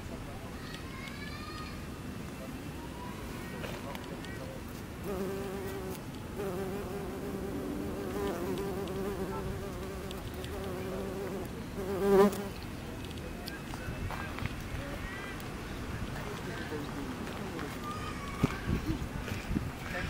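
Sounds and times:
bumblebee buzzing in flight: 5.0 - 12.5.

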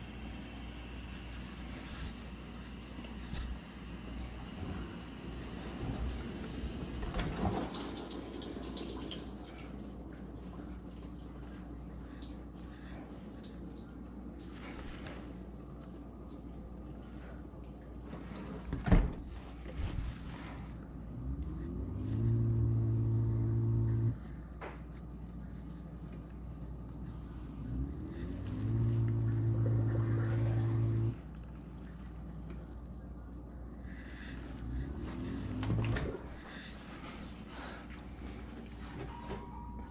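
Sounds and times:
dishwasher running: 0.0 - 25.0, 27.1 - 39.9.

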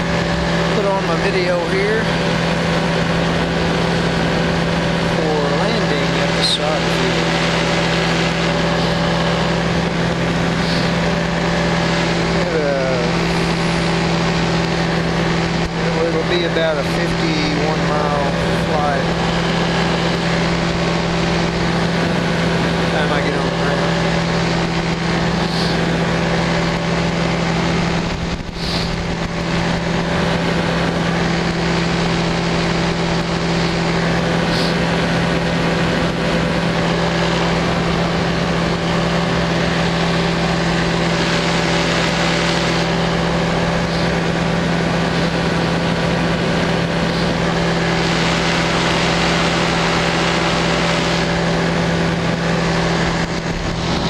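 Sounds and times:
light aircraft engine droning: 0.0 - 54.0
wind noise on microphone: 26.8 - 33.6, 51.6 - 54.0.

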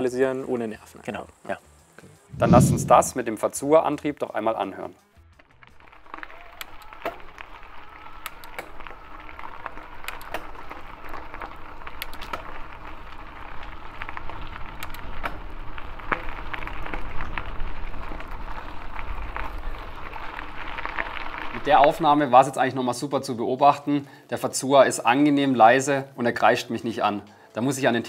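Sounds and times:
low rumble: 2.3 - 3.2
tyres rolling on gravel: 5.7 - 22.5
electric bike motor running: 6.2 - 21.5.

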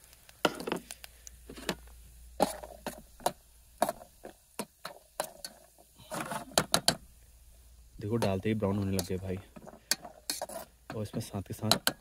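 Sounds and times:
nuts popping in hot oil: 0.0 - 7.3, 7.9 - 12.0
spoon stirring in a pot: 2.4 - 7.0, 8.2 - 12.0.

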